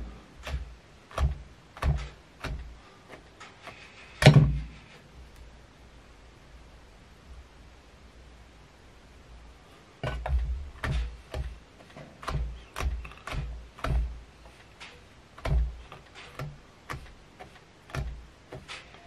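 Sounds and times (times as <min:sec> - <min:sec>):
dull knocks: 0:00.4 - 0:02.7, 0:10.0 - 0:14.2, 0:15.4 - 0:17.1.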